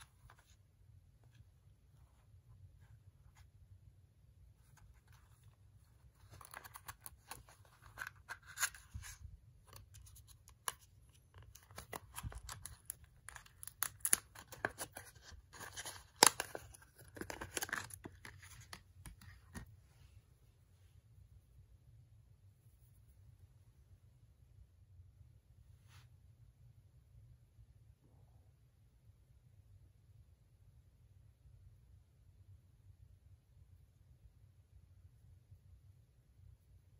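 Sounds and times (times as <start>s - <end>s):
plastic blister pack crackling: 6.2s - 19.2s.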